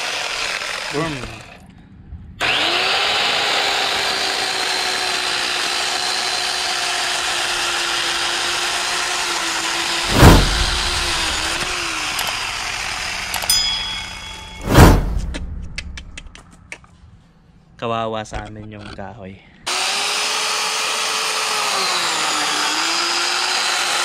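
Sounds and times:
electric chainsaw cutting log: 0.0 - 1.6, 2.4 - 13.6, 19.7 - 24.0
loud burst of noise: 10.0 - 13.4.

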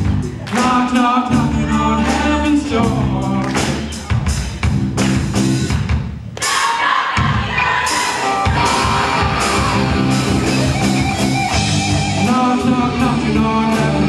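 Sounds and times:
bass guitar: 0.0 - 6.2, 7.3 - 14.0
drum kit: 0.0 - 14.0
people singing into microphone: 0.5 - 3.4
electric guitars: 8.0 - 14.0.

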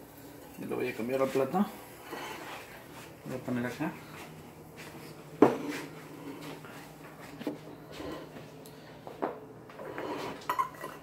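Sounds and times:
plate clattering: 10.0 - 11.0.

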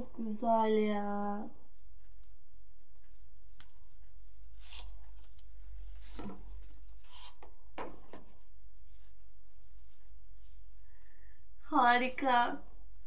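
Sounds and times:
book pages and cover rustling: 3.0 - 10.6.

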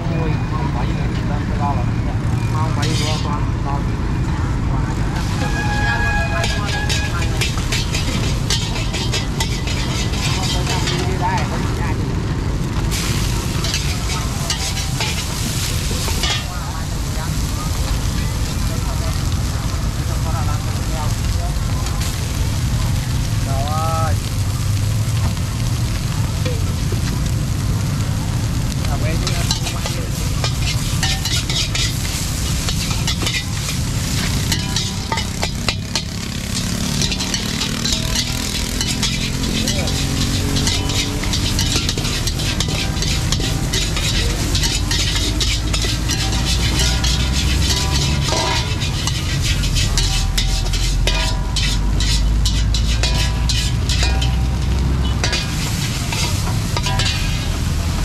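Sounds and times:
rice sizzling: 0.0 - 58.0
metal spatulas scraping wok: 2.4 - 4.0, 5.0 - 18.6, 29.1 - 58.0.

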